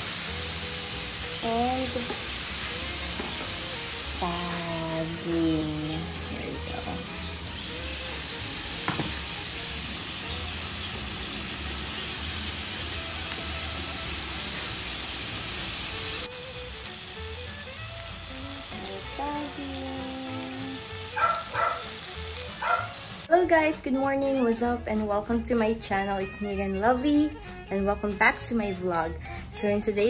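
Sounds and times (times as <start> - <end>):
food sizzling in hot oil: 0.0 - 23.3.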